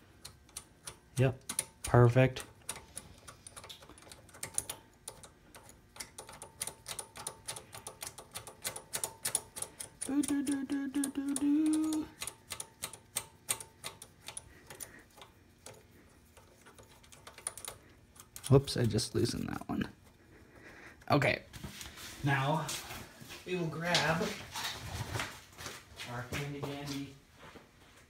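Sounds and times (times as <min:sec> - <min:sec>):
man humming: 0:10.0 - 0:12.2.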